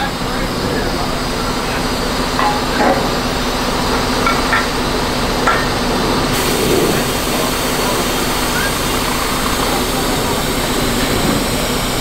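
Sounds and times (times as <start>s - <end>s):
trailer knocks: 0.0s - 12.0s
truck diesel engine running: 0.0s - 12.0s.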